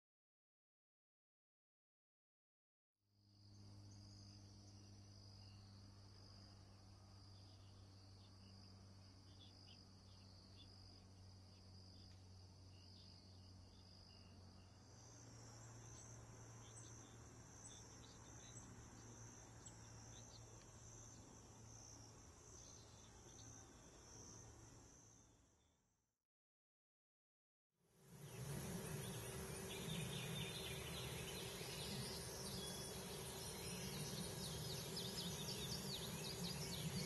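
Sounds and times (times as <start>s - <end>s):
faint low hum: 28.0s - 37.0s
insects trilling: 28.0s - 37.0s.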